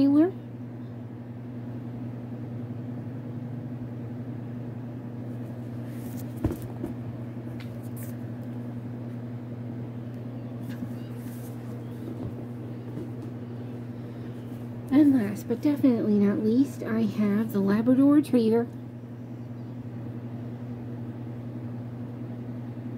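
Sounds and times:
low electrical hum: 0.0s - 22.9s
book rustling: 5.8s - 7.0s.

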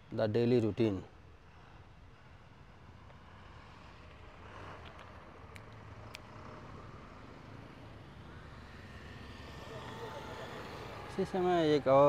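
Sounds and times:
road traffic rumble: 0.0s - 12.0s
vehicle engine: 2.5s - 12.0s
small sharp clicks: 4.8s - 6.3s.

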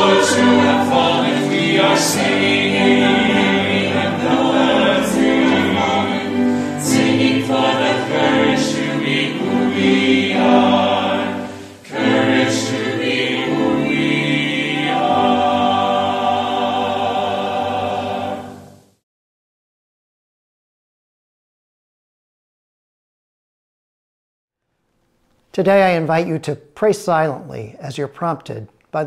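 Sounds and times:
choir singing a hymn: 0.0s - 19.0s.

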